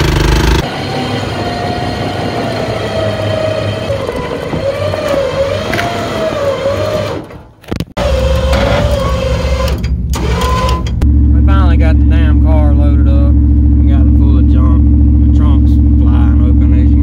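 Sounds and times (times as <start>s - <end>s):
motor whining: 0.0s - 7.4s, 8.0s - 11.0s
steady low rumble: 10.8s - 17.0s.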